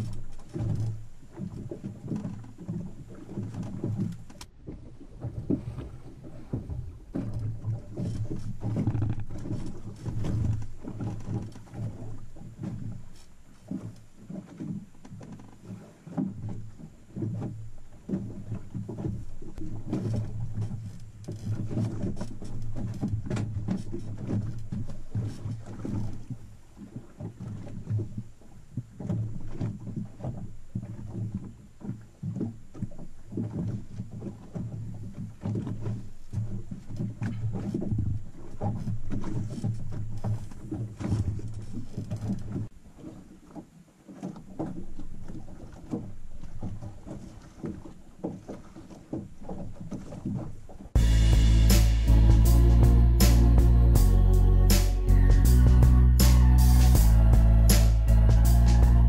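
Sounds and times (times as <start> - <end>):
water against boat hull: 0.0 - 59.0
low hum: 51.0 - 59.0.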